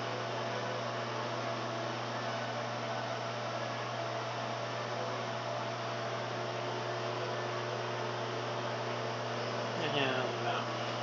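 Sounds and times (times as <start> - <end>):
fan whirring: 0.0 - 11.0
microwave electrical hum: 0.0 - 11.0.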